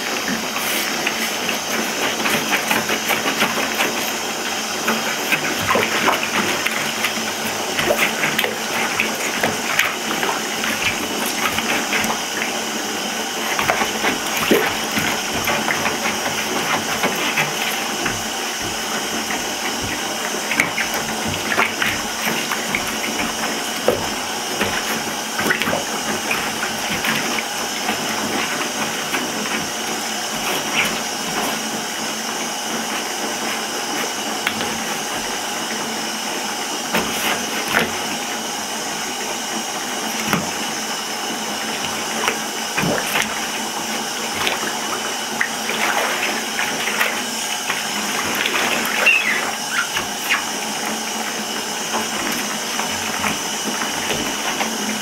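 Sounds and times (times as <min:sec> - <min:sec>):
water running into bathtub: 0:00.0 - 0:55.0
splashes and drips in shallow water: 0:04.8 - 0:31.9, 0:41.4 - 0:55.0.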